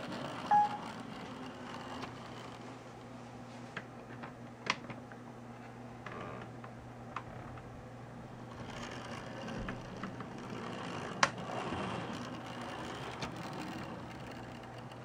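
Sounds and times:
model train whirring rattle: 0:08.5 - 0:15.0.

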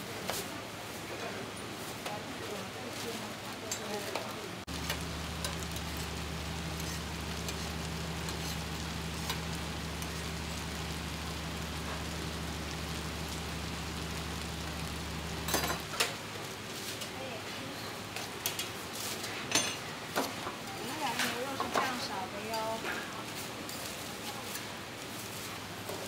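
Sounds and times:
flatbreads sizzling on griddle: 0:01.8 - 0:26.0
steady low hum: 0:04.7 - 0:16.7.

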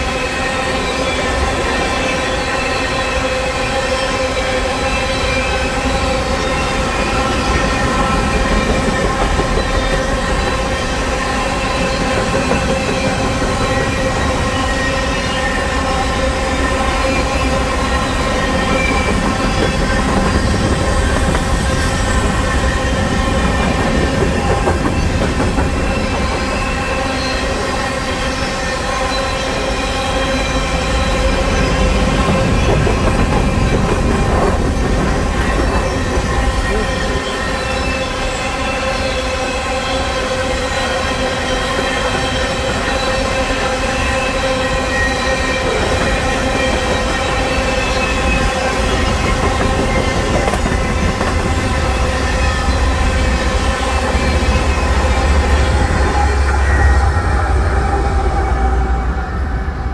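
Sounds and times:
freight train rumbling past: 0:00.0 - 0:59.9
wheels squealing on rails: 0:00.0 - 0:59.9.

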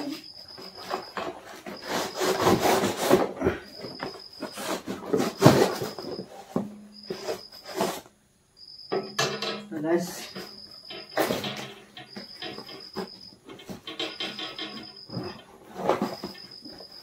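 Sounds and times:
knife sawing through cardboard box: 0:01.8 - 0:03.2.

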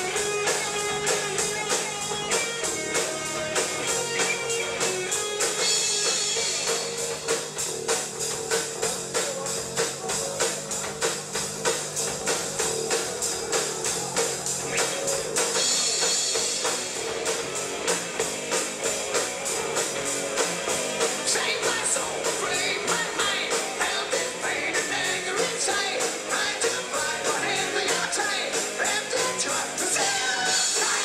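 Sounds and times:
electric guitar: 0:00.0 - 0:08.4, 0:12.9 - 0:31.0
drum kit beat: 0:00.0 - 0:31.0.

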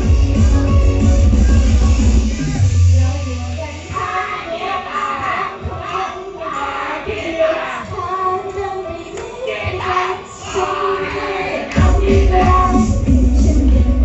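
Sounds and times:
pop music: 0:00.0 - 0:14.0
woman singing into microphone: 0:03.0 - 0:14.0.

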